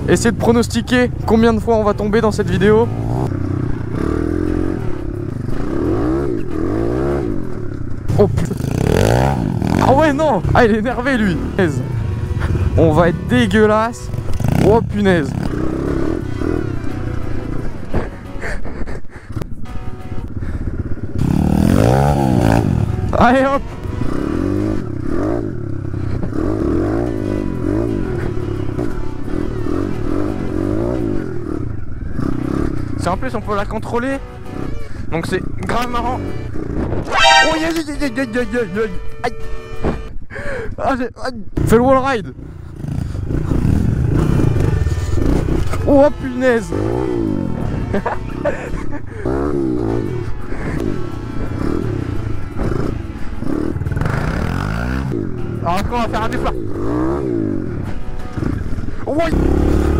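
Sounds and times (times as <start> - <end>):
dirt bike engine revving: 1.5 - 18.2, 19.2 - 33.1, 35.4 - 37.7, 41.6 - 59.9.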